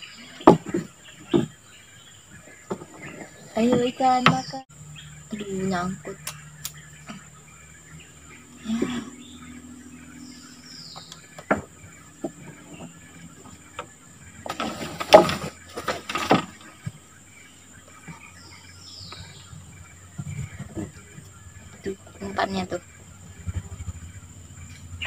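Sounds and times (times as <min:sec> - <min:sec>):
high insect drone: 0:00.0 - 0:25.0
sharp knocks in wooden boat: 0:11.1 - 0:13.0
loud rustling and scraping: 0:14.3 - 0:17.1.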